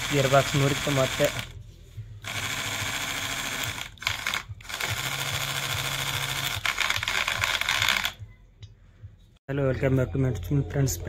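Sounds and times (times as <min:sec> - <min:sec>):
toy motor rattling whir: 0:00.0 - 0:01.5, 0:02.2 - 0:08.2.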